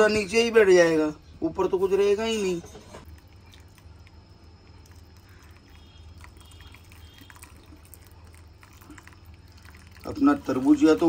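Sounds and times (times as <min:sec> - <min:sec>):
liquid trickling into bowl: 0:03.0 - 0:11.0.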